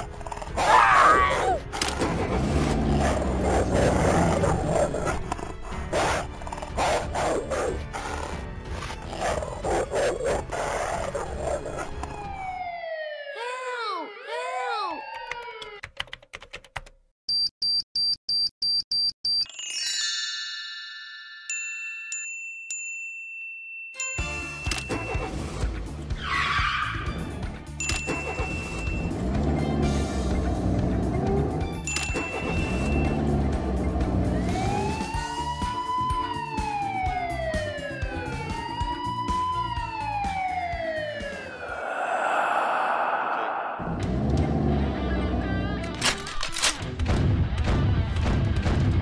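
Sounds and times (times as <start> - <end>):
siren wailing: 11.5 - 15.8, 34.3 - 44.1.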